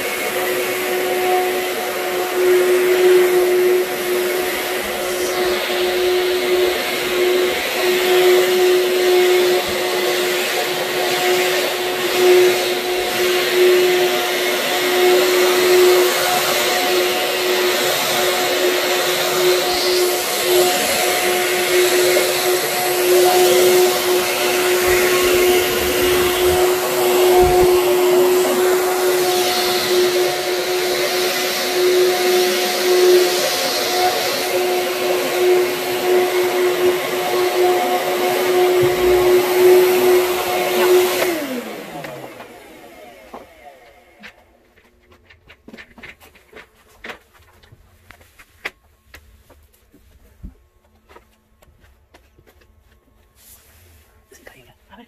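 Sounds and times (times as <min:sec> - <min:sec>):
vacuum cleaner on carpet: 0:00.0 - 0:55.0.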